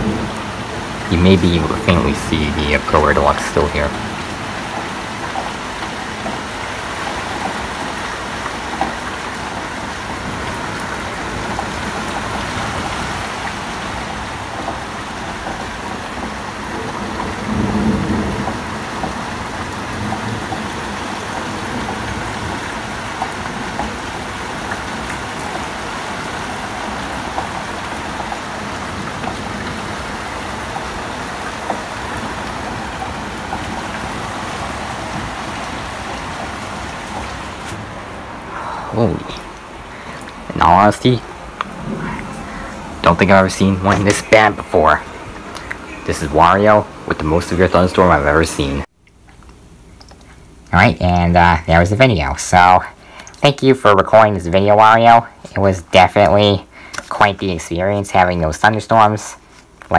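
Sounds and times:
low thunder rumble: 0:00.0 - 0:05.7, 0:10.1 - 0:25.0, 0:27.0 - 0:47.1
rain falling: 0:00.0 - 0:59.9.

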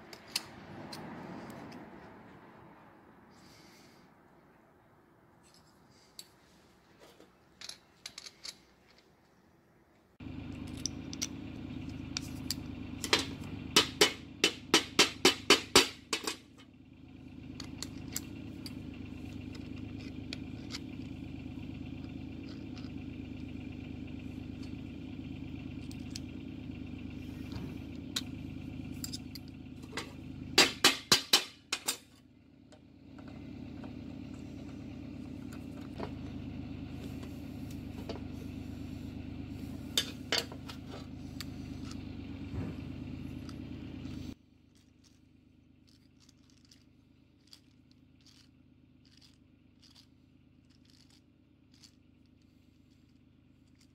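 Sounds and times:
metal parts clicking: 0:00.0 - 0:01.7, 0:07.1 - 0:09.4, 0:10.6 - 0:11.4, 0:17.6 - 0:21.2, 0:28.9 - 0:30.1, 0:44.6 - 0:53.9.

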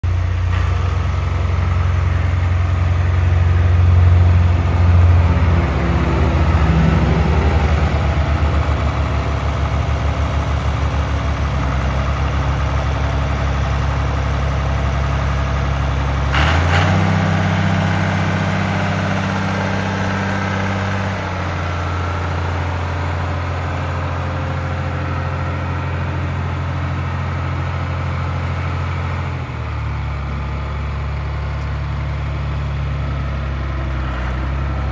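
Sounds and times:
tractor diesel engine running: 0:00.0 - 0:34.9.

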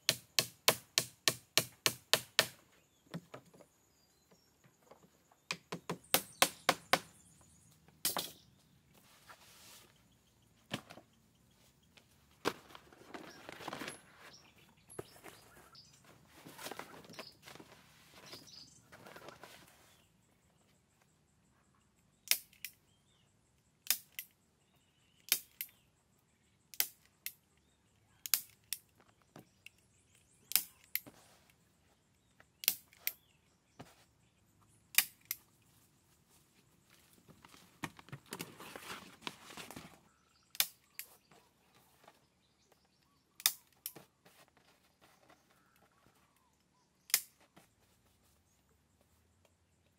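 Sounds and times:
rustling: 0:08.9 - 0:20.2, 0:35.6 - 0:40.1.

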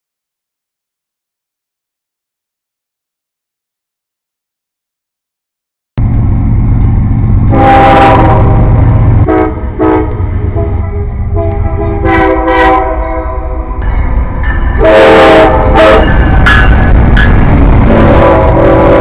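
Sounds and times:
low rumble of moving train: 0:06.0 - 0:19.0
locomotive air horn blasts: 0:07.5 - 0:13.8, 0:14.8 - 0:16.2, 0:17.8 - 0:19.0.

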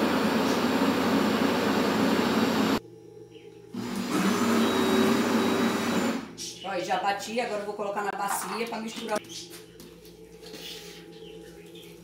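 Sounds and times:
blender motor running: 0:00.0 - 0:02.8, 0:03.8 - 0:06.3.

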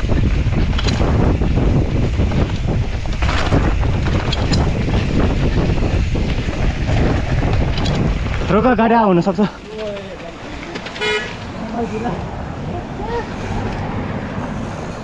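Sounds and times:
bike knocks and rattles: 0:00.0 - 0:11.8
wind buffeting microphone: 0:00.0 - 0:15.0.

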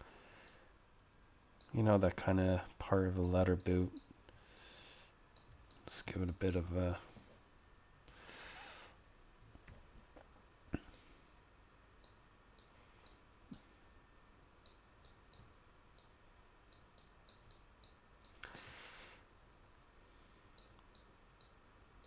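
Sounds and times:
computer mouse clicks: 0:05.4 - 0:06.0, 0:12.0 - 0:13.6, 0:14.6 - 0:18.5, 0:20.5 - 0:21.6.

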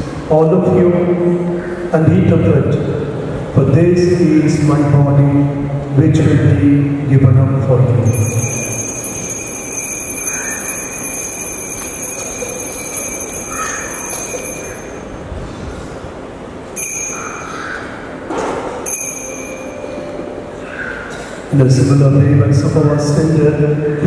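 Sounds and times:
altar bell ringing: 0:08.0 - 0:15.3, 0:16.7 - 0:17.8, 0:18.8 - 0:21.0.

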